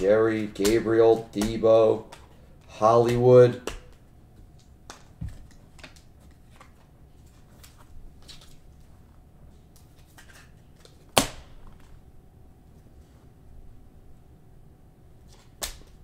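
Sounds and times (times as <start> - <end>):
plastic card sleeves crinkling: 4.9 - 8.9.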